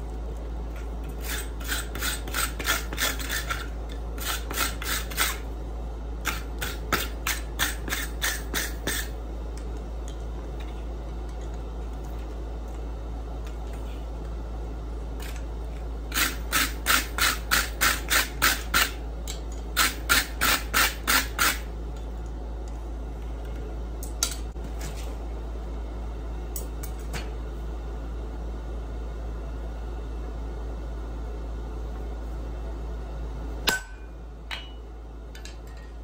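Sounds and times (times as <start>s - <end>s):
steady low hum: 0.0s - 36.0s
wire brush scrubbing steel: 1.1s - 5.4s, 6.3s - 9.1s.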